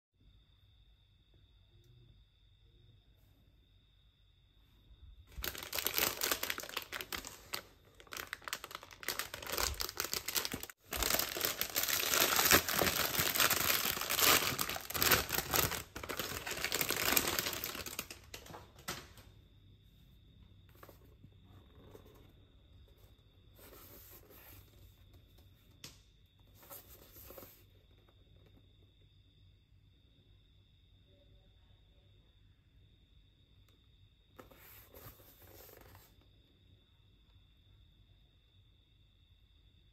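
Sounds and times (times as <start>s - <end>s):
plastic wrapping crinkling and tearing: 5.3s - 19.0s.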